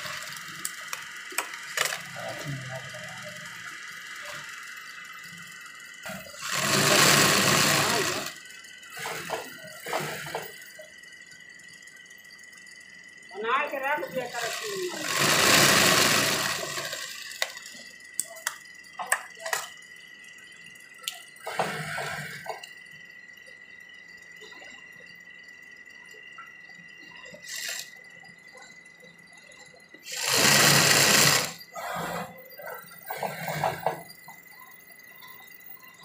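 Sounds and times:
sewing machine stitching: 0:06.0 - 0:10.6, 0:14.3 - 0:17.6, 0:21.4 - 0:22.5, 0:27.4 - 0:27.9, 0:30.0 - 0:32.4, 0:33.0 - 0:34.0.

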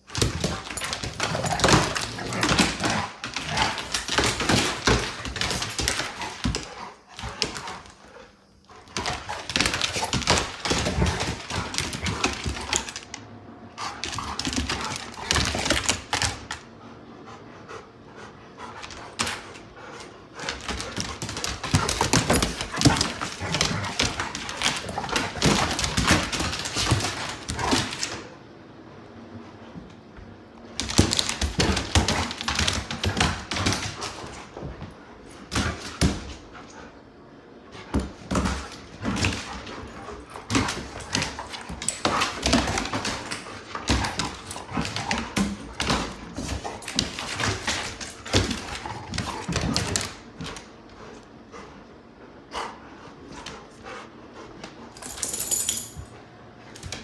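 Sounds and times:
dog panting: 0:16.8 - 0:21.2
dog claws scrabbling on wooden floor: 0:20.4 - 0:28.3.

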